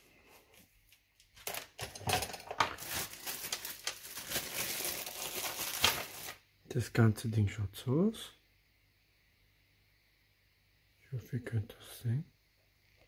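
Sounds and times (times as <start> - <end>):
plastic bag crinkling: 1.3 - 6.4.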